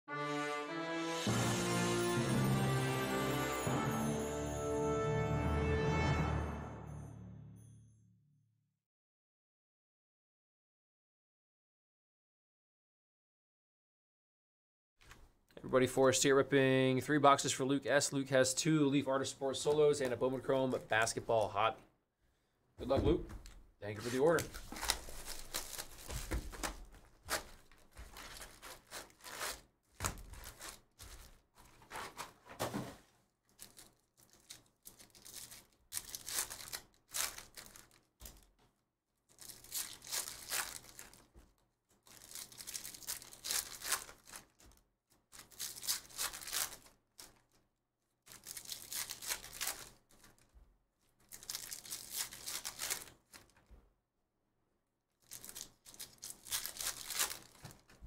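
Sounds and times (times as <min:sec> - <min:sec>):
cards handled and stacked: 0:22.9 - 0:33.0, 0:55.4 - 0:58.0
packs torn open and crinkled: 0:24.3 - 0:32.3, 0:33.5 - 0:38.5, 0:39.3 - 0:47.6, 0:48.3 - 0:50.5, 0:51.2 - 0:53.6, 0:55.2 - 0:58.0.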